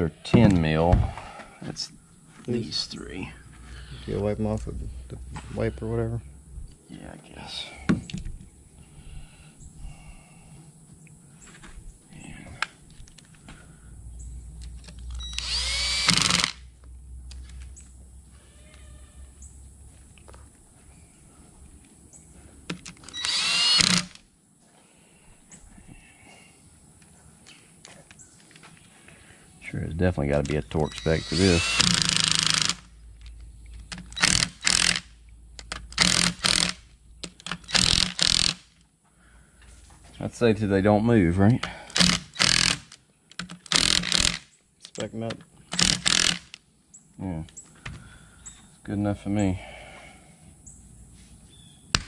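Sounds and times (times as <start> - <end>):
cordless drill whining: 15.1 - 16.6, 23.0 - 24.2, 30.8 - 32.9, 34.0 - 35.0, 35.7 - 36.8, 37.4 - 38.6, 41.9 - 42.9, 43.5 - 44.4, 45.7 - 46.6.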